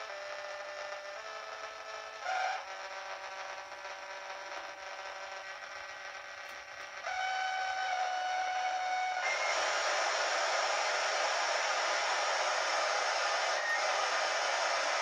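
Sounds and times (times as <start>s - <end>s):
radio hiss: 2.6s - 15.0s
buzzy whining radio interference: 7.0s - 15.0s.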